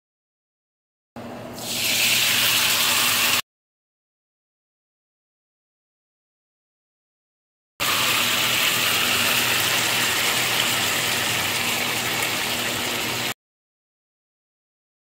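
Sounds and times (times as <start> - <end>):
sauce sizzling in skillet: 1.6 - 3.4, 7.8 - 13.3.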